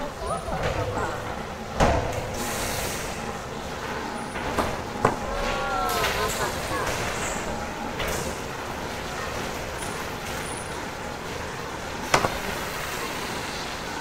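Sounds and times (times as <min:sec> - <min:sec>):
machinery and ventilation din: 0:00.0 - 0:14.0.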